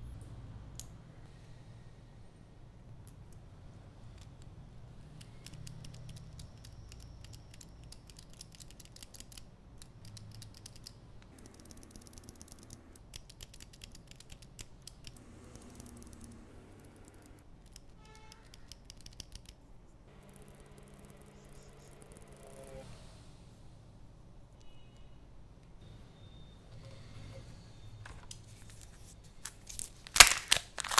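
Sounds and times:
small plastic parts clicking: 5.1s - 16.4s, 17.0s - 19.6s.

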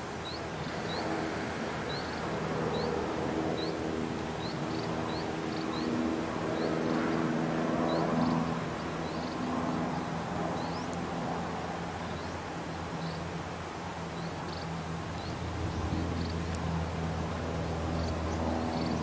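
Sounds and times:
low drone of held tones: 14.2s - 19.0s.

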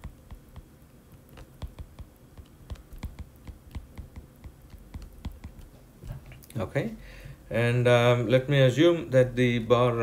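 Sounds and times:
stylus tapping on glass screen: 0.0s - 0.7s, 1.3s - 5.7s.

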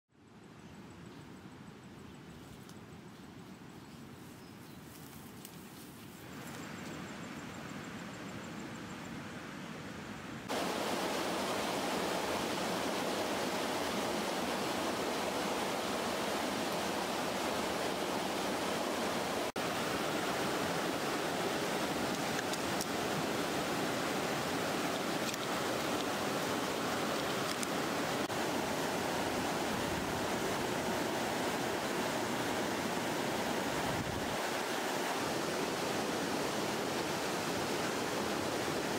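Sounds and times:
faint outdoor ambience: 0.1s - 38.9s
river water rushing: 10.5s - 38.9s.

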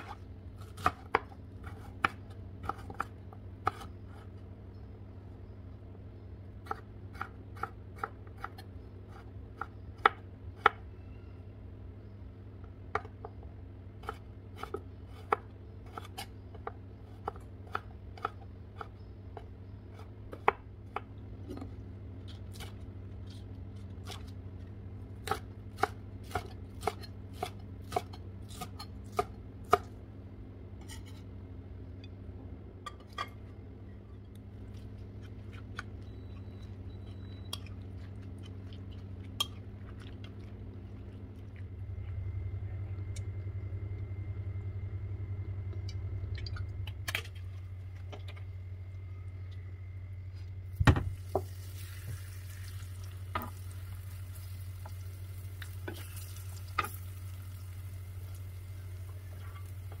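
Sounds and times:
steady low hum: 0.0s - 60.0s.

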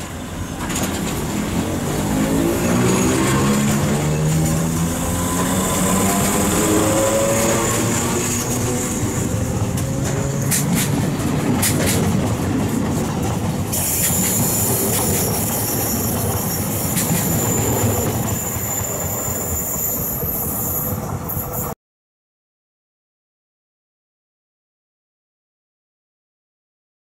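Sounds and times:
wheels clicking over rail joints: 0.0s - 19.0s
train wheels rumbling on rail: 0.0s - 21.8s
high wheel squeal: 0.1s - 10.8s, 13.7s - 21.8s.

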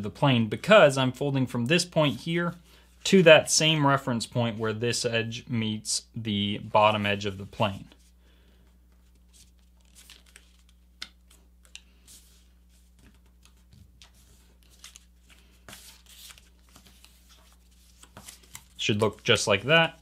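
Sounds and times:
paper being folded and creased: 9.0s - 20.0s.

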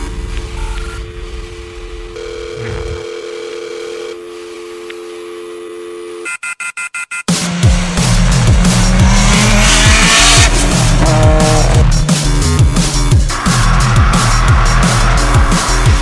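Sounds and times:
stuttering music chops: 7.3s - 16.0s.

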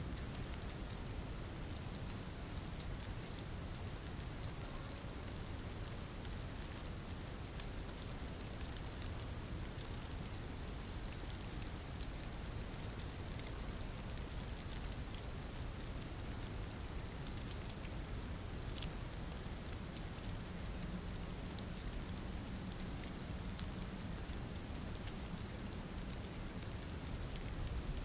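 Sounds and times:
steady rainfall: 0.0s - 28.0s.

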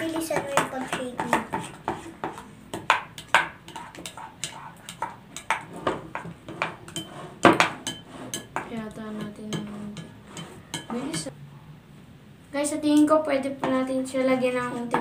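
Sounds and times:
slime being stirred: 0.0s - 11.3s
wooden spoons knocking on glass bowls: 0.0s - 11.3s.

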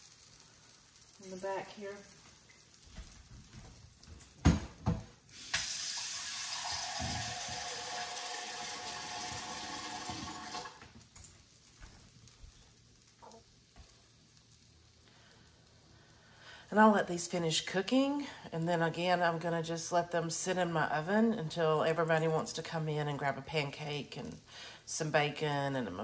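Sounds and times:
kitchen tap running: 4.4s - 11.0s.

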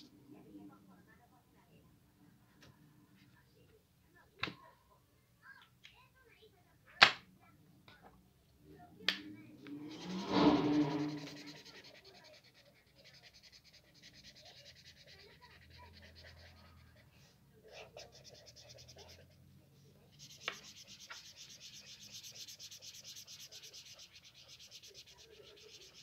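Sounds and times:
marker scratching on paper: 9.7s - 26.0s.

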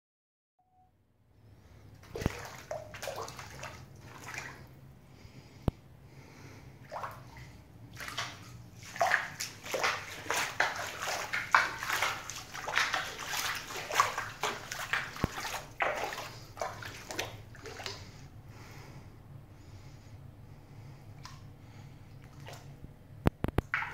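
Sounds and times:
footsteps splashing through water: 2.0s - 4.7s, 6.8s - 18.2s, 23.6s - 23.9s.

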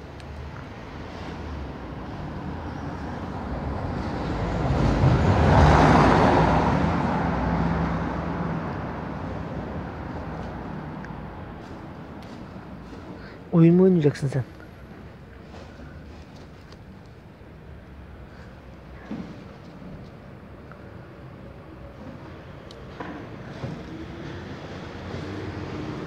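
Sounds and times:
vehicle driving past: 0.9s - 13.0s, 23.2s - 26.0s.

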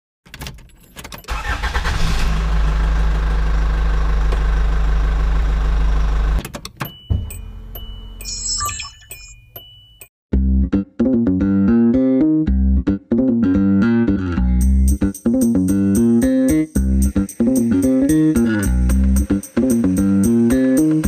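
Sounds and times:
engine deep rumble: 1.3s - 6.4s
high steady beeps: 6.9s - 10.1s.

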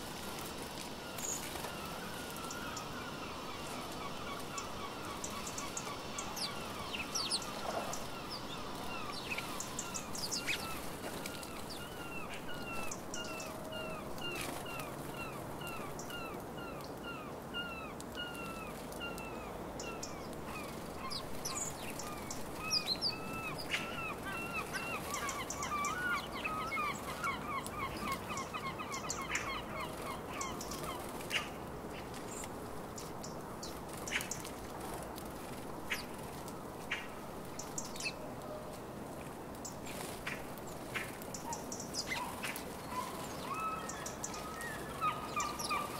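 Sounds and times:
wings fluttering: 0.0s - 3.0s, 3.6s - 12.9s
sparrows chirping: 19.9s - 34.5s, 39.7s - 45.9s.

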